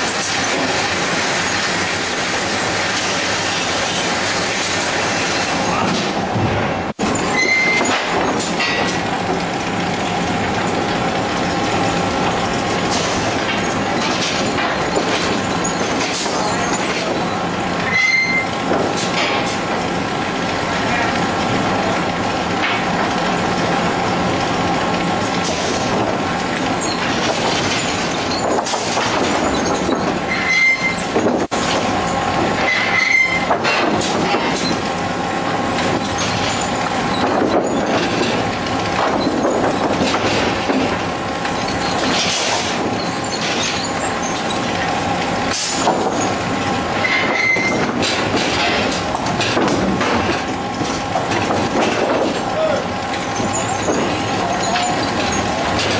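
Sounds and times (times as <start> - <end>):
metallic clatter of chain conveyors: 0.0 - 6.2, 7.0 - 55.9
high metal squeals: 7.0 - 7.9, 13.6 - 18.6, 26.7 - 31.2, 32.0 - 33.5, 41.4 - 45.0, 47.0 - 47.8, 52.6 - 55.9.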